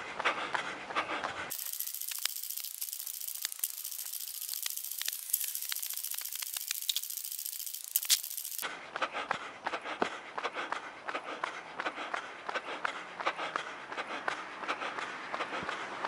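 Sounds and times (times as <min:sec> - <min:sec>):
camera clicking and rattling: 0:01.5 - 0:08.6
steady high hiss: 0:01.5 - 0:08.6.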